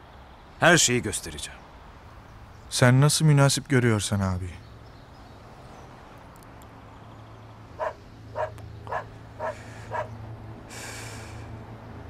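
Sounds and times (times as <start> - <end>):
dog barking: 7.8 - 10.2.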